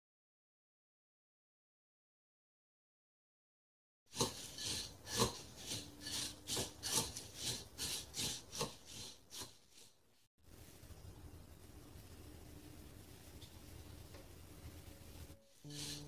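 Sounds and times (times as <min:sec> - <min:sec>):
chopsticks stirring seaweed: 0:04.1 - 0:10.0
faint steady hiss: 0:10.0 - 0:16.0.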